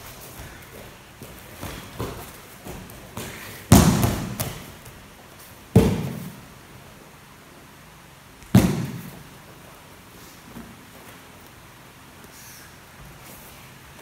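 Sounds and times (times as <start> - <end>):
bodies thudding on mats: 0.0 - 5.0, 8.4 - 9.2.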